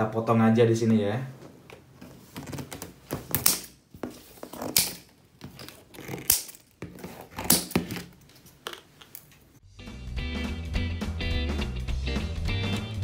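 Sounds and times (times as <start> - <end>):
plastic crinkling and tearing: 4.4 - 9.1
scissors snipping plastic straps: 4.6 - 9.4.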